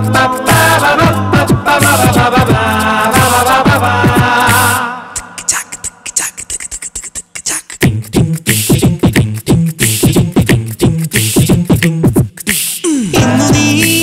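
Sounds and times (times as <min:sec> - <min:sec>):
deep vocal bass notes: 0:00.0 - 0:05.5, 0:12.9 - 0:14.0
beatboxing: 0:00.0 - 0:14.0
hissing vocal hi-hat: 0:00.0 - 0:14.0
mouth clicks: 0:04.5 - 0:13.0.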